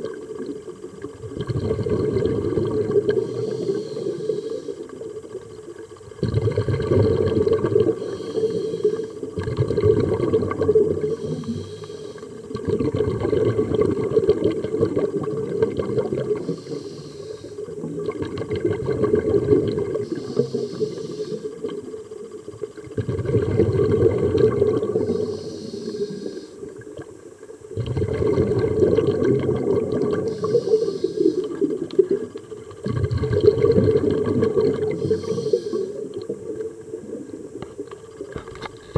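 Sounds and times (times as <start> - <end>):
scuba exhale bubbling: 0.0 - 38.9
regulator inhalation hiss: 3.0 - 5.1, 7.8 - 9.3, 10.9 - 12.5, 16.3 - 17.9, 19.9 - 22.2, 24.8 - 26.7, 30.2 - 32.1, 34.8 - 36.2.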